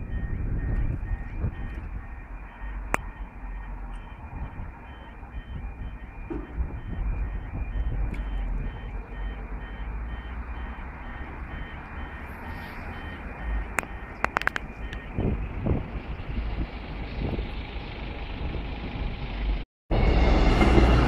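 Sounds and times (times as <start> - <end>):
low wind rumble: 0.0 - 9.0, 10.9 - 21.0
two-tone yodel alarm: 0.0 - 15.7.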